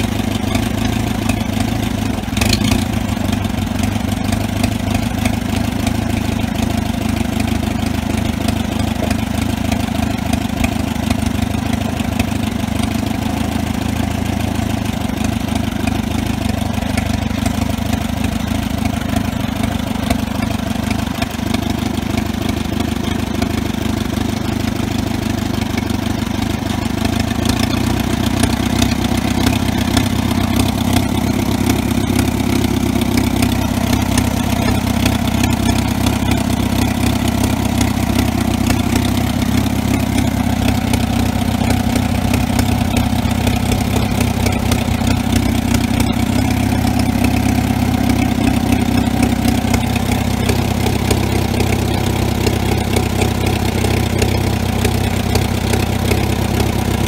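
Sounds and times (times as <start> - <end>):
tractor engine running: 0.0 - 57.0.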